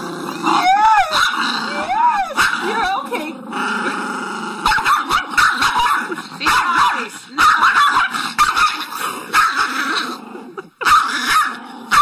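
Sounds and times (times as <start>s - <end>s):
small dog barking: 1.1s - 1.4s, 2.3s - 2.8s, 4.6s - 9.7s, 10.8s - 12.0s.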